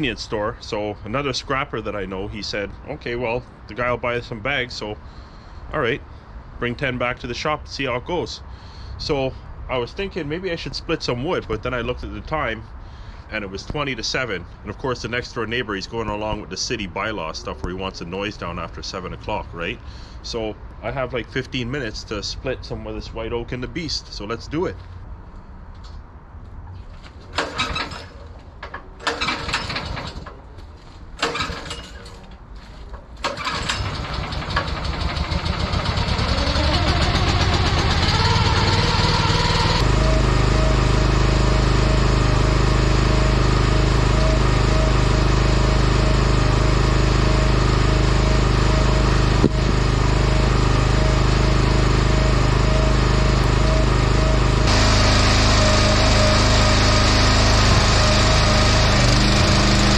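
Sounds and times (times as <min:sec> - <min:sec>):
gas engine starting and running: 0:27.2 - 0:30.5, 0:31.2 - 0:32.1, 0:33.1 - 0:59.9.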